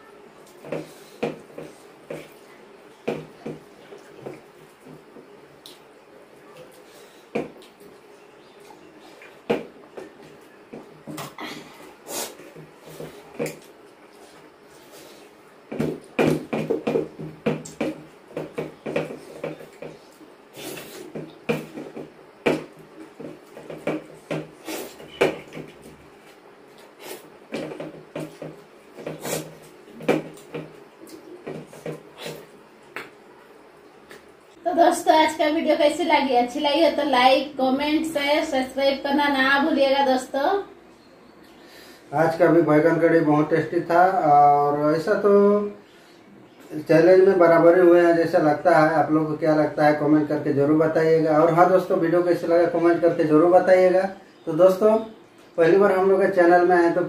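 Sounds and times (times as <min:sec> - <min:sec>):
hands mixing food on steel plates: 0:00.0 - 0:34.6
people chewing: 0:00.4 - 0:34.4.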